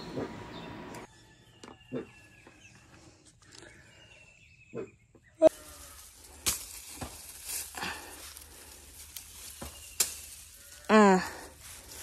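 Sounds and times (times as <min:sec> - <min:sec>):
leaves and twigs rustling: 0:05.5 - 0:12.0
branches snapping: 0:05.7 - 0:10.9.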